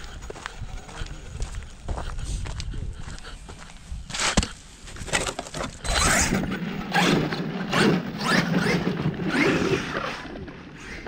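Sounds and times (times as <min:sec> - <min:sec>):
electric motor revving whines: 0:05.8 - 0:11.0.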